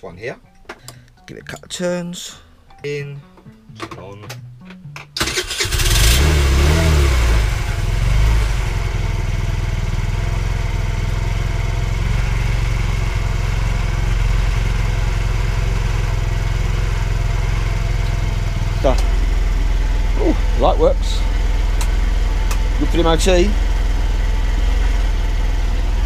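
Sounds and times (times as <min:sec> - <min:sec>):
moped engine starting and idling: 0:05.2 - 0:26.0.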